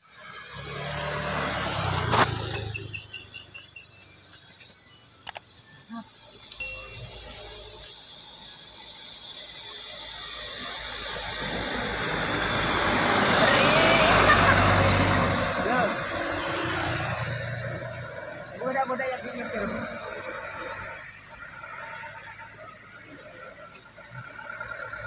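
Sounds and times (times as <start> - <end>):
motorcycle passing: 0.0 - 4.0, 10.6 - 23.4
high chirps: 2.2 - 18.6
truck engine straining: 9.8 - 25.0.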